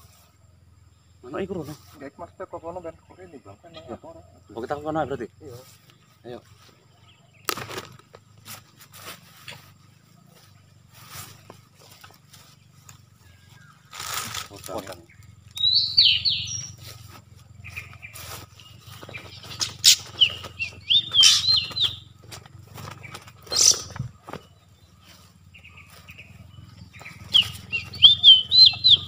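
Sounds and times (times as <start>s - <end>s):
bird warbling song: 0.0s - 8.4s, 9.3s - 29.0s
sharp clicks and rustles: 7.4s - 9.6s, 13.9s - 15.3s, 18.9s - 24.5s.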